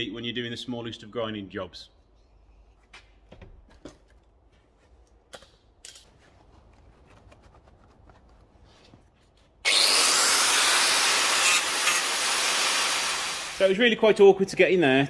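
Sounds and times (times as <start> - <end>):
power grinder whining: 9.6 - 13.7.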